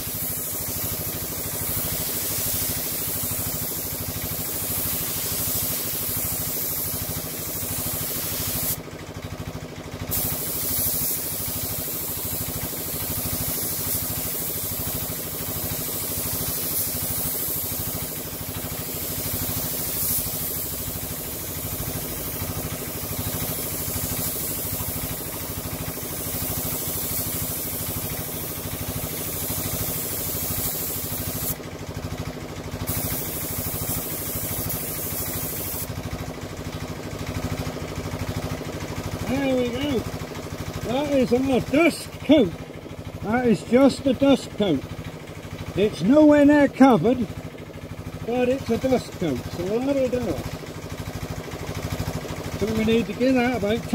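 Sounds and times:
air compressor running: 0.0s - 53.9s
paint spray gun hissing: 0.0s - 53.9s.

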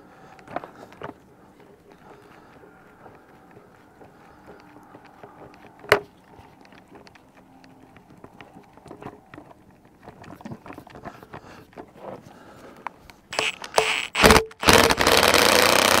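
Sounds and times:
sharp click: 13.3s - 15.3s.

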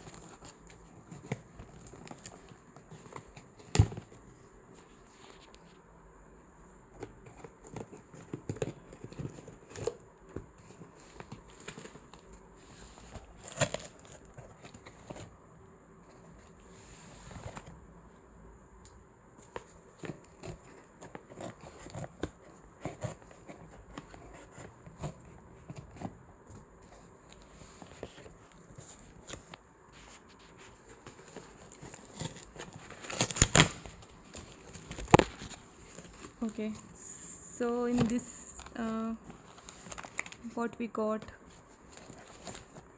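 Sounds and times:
cardboard ripping: 13.0s - 15.3s, 30.4s - 36.8s
scissors cutting cardboard: 20.0s - 26.2s, 31.1s - 33.9s.

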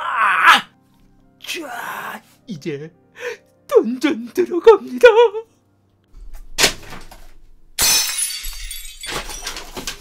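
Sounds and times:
household clattering: 8.4s - 10.0s.

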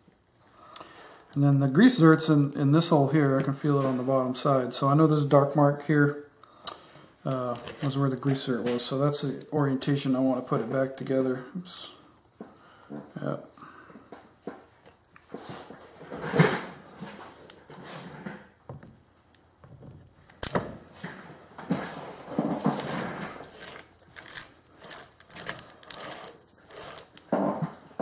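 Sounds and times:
metal parts knocking and scraping: 22.5s - 27.4s.

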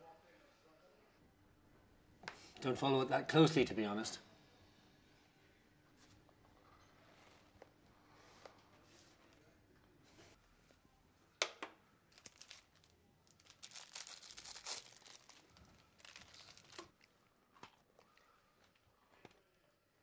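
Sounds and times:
wrapper snapping: 12.1s - 17.8s
cellophane wrapper crinkling: 12.1s - 18.1s.

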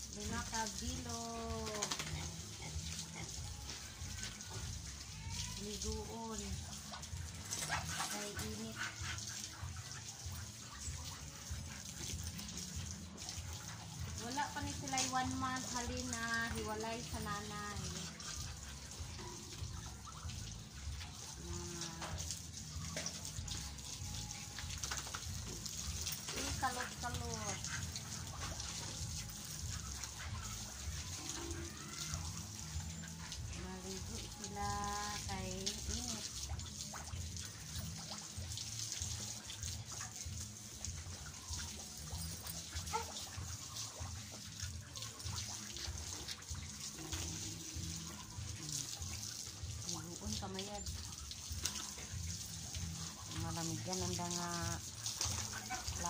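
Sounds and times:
water spraying from garden hose: 0.0s - 56.0s.

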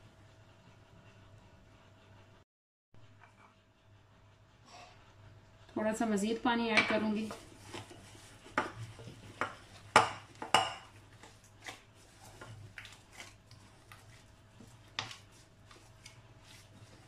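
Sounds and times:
gloved hands kneading dough: 6.9s - 17.0s.

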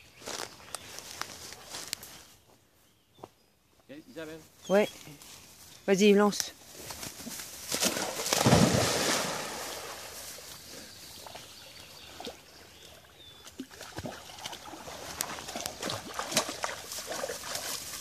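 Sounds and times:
dog splashing into water: 7.7s - 10.2s, 13.4s - 18.0s
water lapping and splashing: 7.7s - 10.4s, 11.2s - 18.0s.

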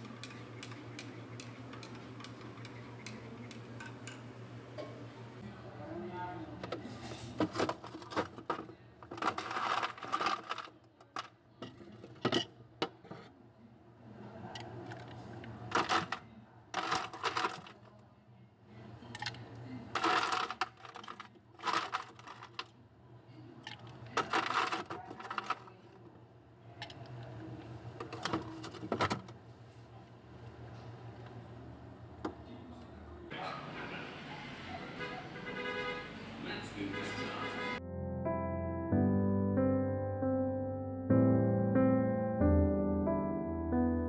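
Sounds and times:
ice cubes clattering: 7.4s - 12.2s, 15.7s - 16.2s, 16.8s - 17.9s, 19.2s - 22.7s, 23.7s - 25.8s
metal spoon scooping ice: 9.1s - 10.8s, 16.8s - 17.8s, 20.0s - 22.6s, 23.7s - 25.8s.

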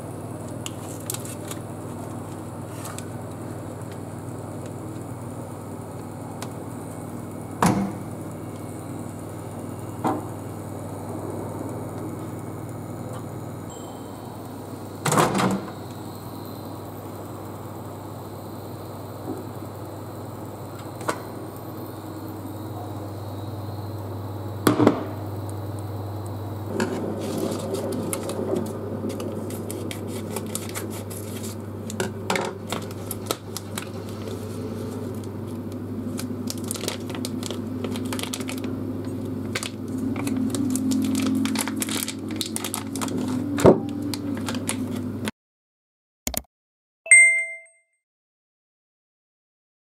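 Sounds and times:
steady low hum: 0.0s - 44.1s
plastic bag crinkling: 36.0s - 43.6s.

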